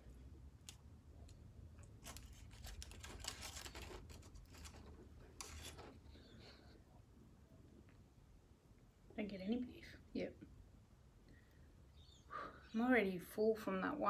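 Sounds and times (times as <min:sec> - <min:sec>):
metal utensil scraping foil container: 0:02.0 - 0:05.9.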